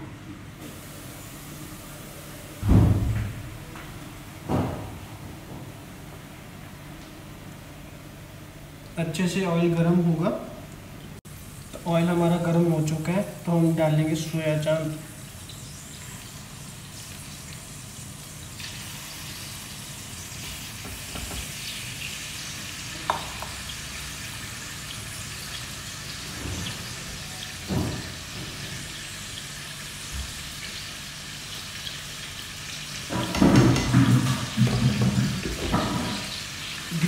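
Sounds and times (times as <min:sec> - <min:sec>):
food sizzling in hot oil: 0:11.3 - 0:12.6, 0:13.2 - 0:37.0.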